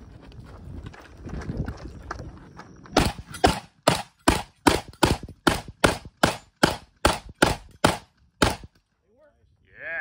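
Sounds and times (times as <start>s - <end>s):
shotgun shots: 3.0s - 8.7s.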